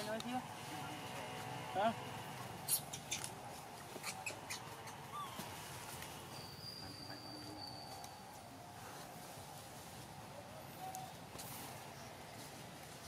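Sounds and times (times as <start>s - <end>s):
baby monkey squeaking: 2.6s - 3.4s, 4.0s - 5.5s.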